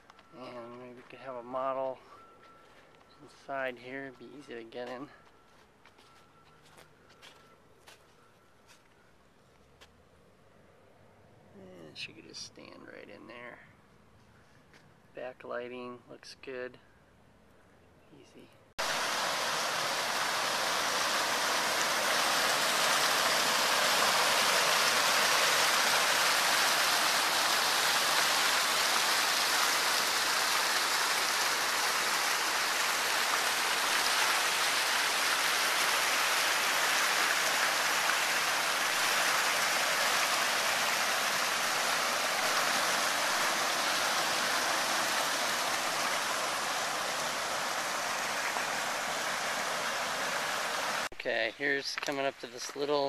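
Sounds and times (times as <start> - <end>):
water rushing over weir: 18.8 - 51.1.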